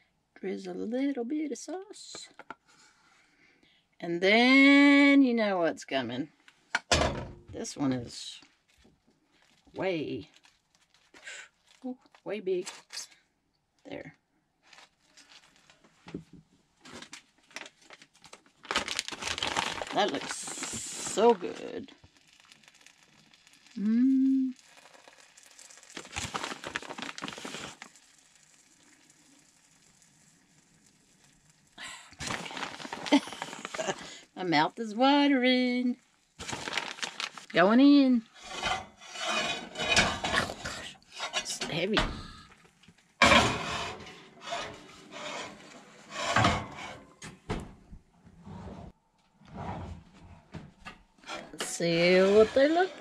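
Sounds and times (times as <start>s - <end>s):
cheese crinkling and rustling: 8.4s - 13.2s, 14.6s - 34.2s, 35.9s - 41.5s
skillet scraping on oven rack: 38.4s - 41.6s, 43.2s - 47.2s, 51.2s - 53.0s.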